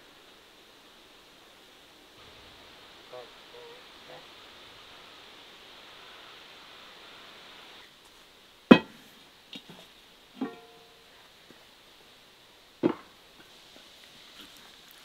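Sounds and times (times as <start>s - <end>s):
metal clank ringing: 10.4s - 11.0s.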